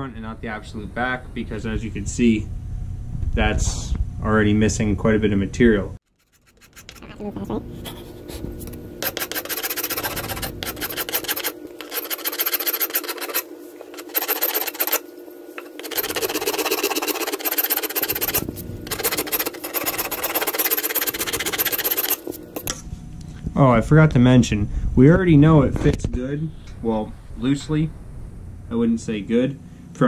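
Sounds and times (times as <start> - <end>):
rasp filing wood: 6.1 - 7.2, 7.8 - 22.4.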